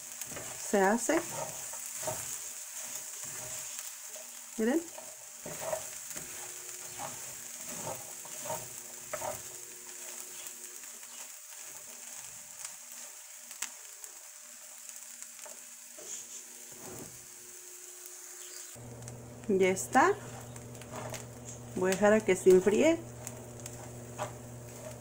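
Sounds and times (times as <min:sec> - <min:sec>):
corn kernels sizzling in a pan: 0:00.0 - 0:25.0
spoon scraping and stirring: 0:00.2 - 0:04.2, 0:04.9 - 0:10.2, 0:20.1 - 0:21.8, 0:22.4 - 0:25.0.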